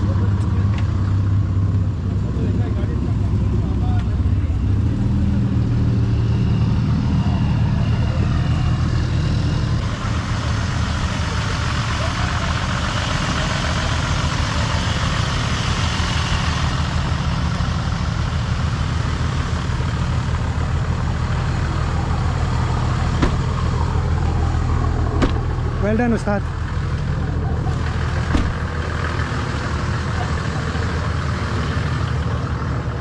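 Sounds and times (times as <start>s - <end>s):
engine idling: 0.0s - 33.0s.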